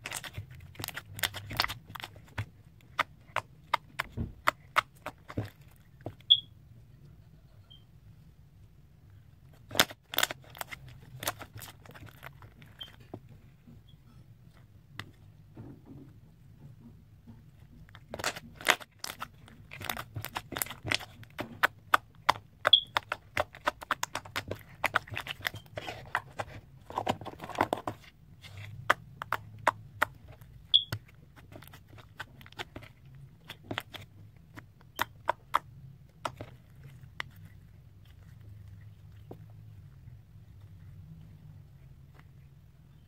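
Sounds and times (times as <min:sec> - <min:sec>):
slime squishing: 0:00.0 - 0:06.5, 0:09.3 - 0:15.4, 0:17.2 - 0:43.0
slime clicking and popping: 0:18.1 - 0:25.6, 0:28.8 - 0:36.6.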